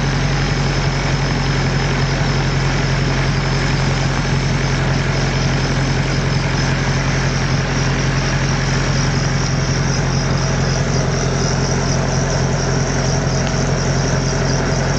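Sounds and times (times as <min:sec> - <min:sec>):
tractor engine running steadily: 0:00.0 - 0:14.9.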